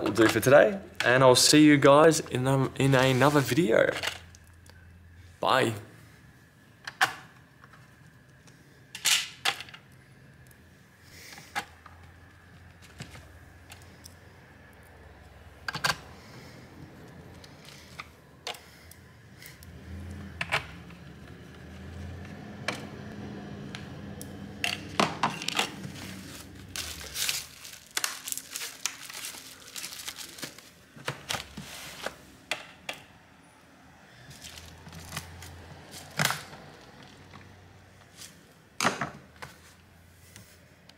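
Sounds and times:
bubble wrap crinkling: 25.4s - 32.2s, 34.3s - 37.2s.

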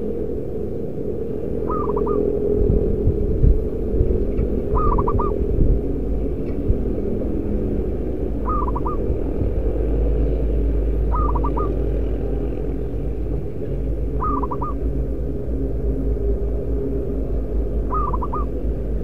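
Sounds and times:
steady low rumble: 0.0s - 19.0s
dove cooing: 1.6s - 3.5s, 4.3s - 7.2s, 8.3s - 9.4s, 11.0s - 15.0s, 17.8s - 19.0s.

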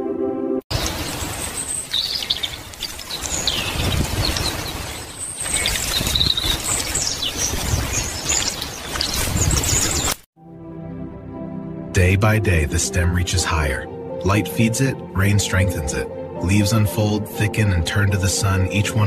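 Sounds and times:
small birds chirping: 0.7s - 10.2s.

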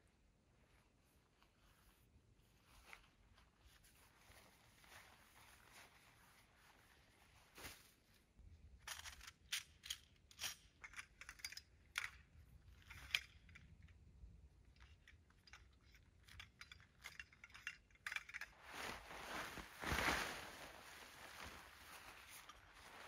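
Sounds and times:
tent fabric rustling: 1.0s - 8.2s, 18.5s - 23.0s
light clicks and clinks: 8.8s - 14.0s, 14.6s - 18.9s.

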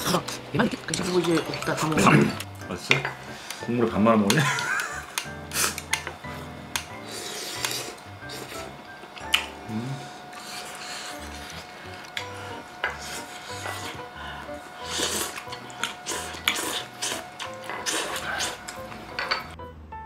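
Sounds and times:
utensils clinking against dishes: 0.0s - 8.6s, 10.3s - 14.0s, 14.9s - 19.6s
soft background music: 0.0s - 20.0s.

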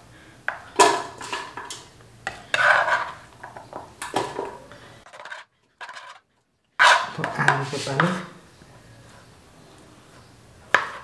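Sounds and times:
knife scraping cutting board: 2.4s - 3.3s, 6.8s - 8.3s.

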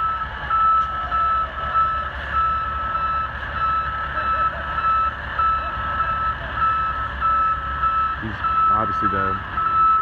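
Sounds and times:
back-up alarms beeping: 0.0s - 10.0s
low diesel engine rumble: 0.0s - 10.0s.

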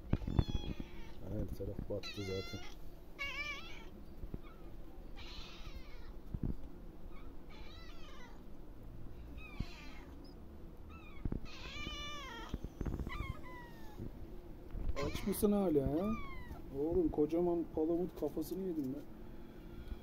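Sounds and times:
cat meowing: 0.1s - 1.2s, 2.0s - 6.1s, 7.1s - 8.4s, 9.4s - 10.2s, 10.9s - 14.0s, 15.0s - 15.4s, 16.0s - 16.6s.

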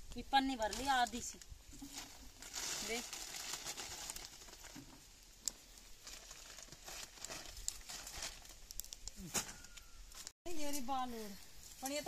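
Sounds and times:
leaves rustling: 0.0s - 12.0s
plastic bag crinkling: 1.8s - 4.9s, 6.0s - 8.7s
small snaps and clicks: 8.6s - 9.2s.

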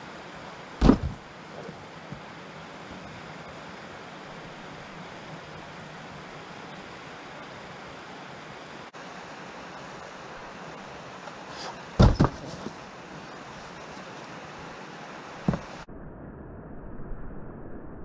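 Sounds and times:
loud thumps: 0.8s - 1.2s, 12.0s - 12.6s.

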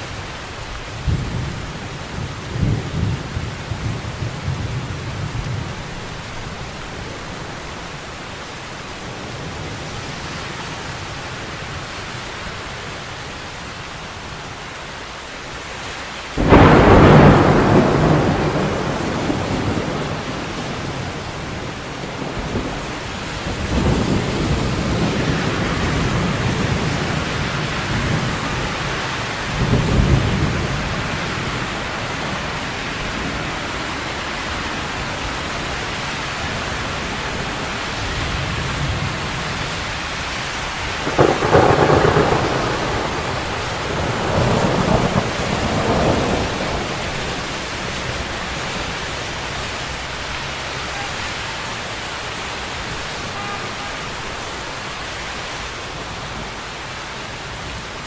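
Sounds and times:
steady rain: 0.0s - 58.0s
thunder cracking and rolling: 16.4s - 35.8s, 36.5s - 50.2s.

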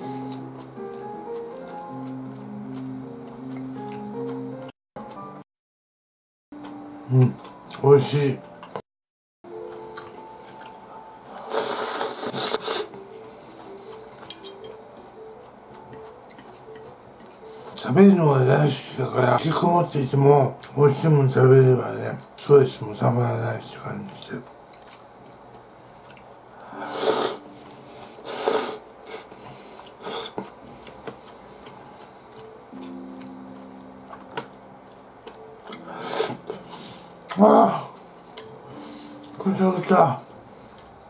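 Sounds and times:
man slurping noodles: 11.5s - 12.9s, 26.8s - 27.4s, 28.2s - 30.4s, 35.8s - 36.7s.

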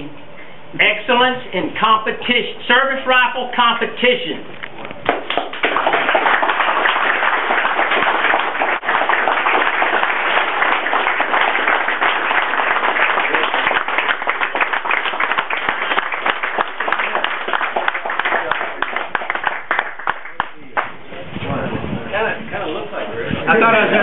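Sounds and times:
crowd applauding: 5.0s - 21.0s.

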